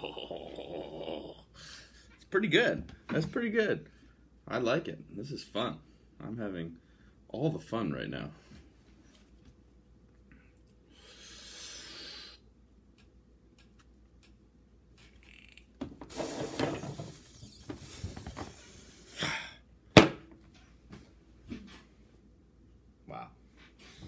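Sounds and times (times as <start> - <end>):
person breathing heavily and straining: 17.8 - 19.7.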